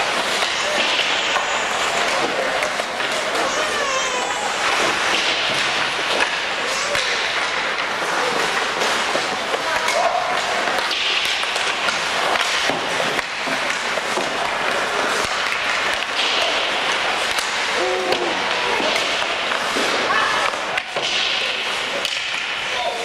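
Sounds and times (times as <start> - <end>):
hockey sticks and puck clacking: 0.0 - 23.0
skates scraping ice: 0.0 - 23.0
players calling out: 17.4 - 19.2.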